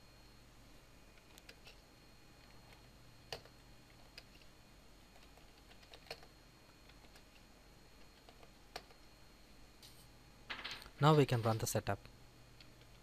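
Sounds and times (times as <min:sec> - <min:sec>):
computer keyboard typing: 0:01.1 - 0:01.8, 0:02.4 - 0:04.5, 0:05.1 - 0:09.1.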